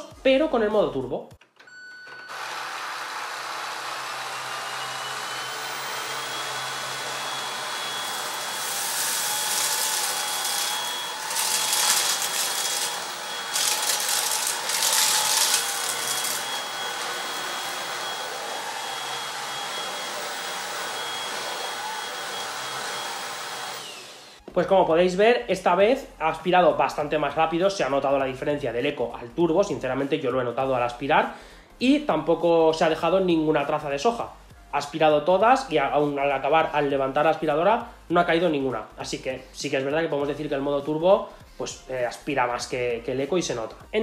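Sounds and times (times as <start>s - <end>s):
stick vacuum motor whine: 1.5s - 24.4s.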